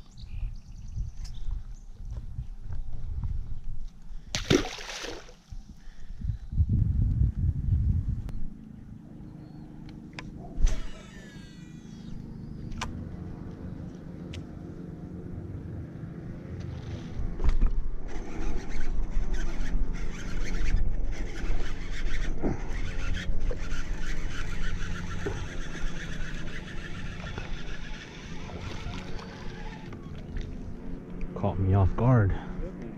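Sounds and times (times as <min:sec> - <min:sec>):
wind buffeting microphone: 0:00.0 - 0:04.4, 0:05.5 - 0:08.5
boat motor humming: 0:08.3 - 0:32.9.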